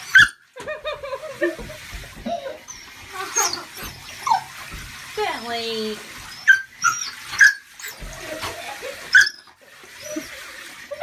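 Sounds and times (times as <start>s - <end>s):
dog whining yelps: 0.0s - 0.5s, 2.3s - 4.6s, 6.3s - 8.0s, 9.1s - 10.5s
faint running water: 0.0s - 11.0s.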